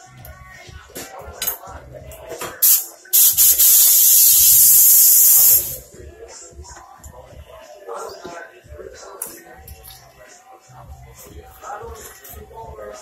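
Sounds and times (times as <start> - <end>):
spray hissing: 2.6 - 5.8.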